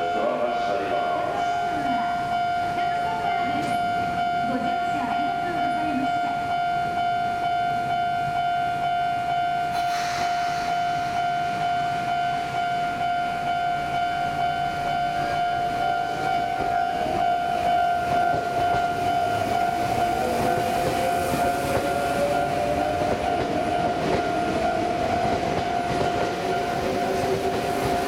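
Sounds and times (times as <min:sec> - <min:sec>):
electric train high whine: 0:00.0 - 0:28.0
short hiss: 0:09.8 - 0:11.2.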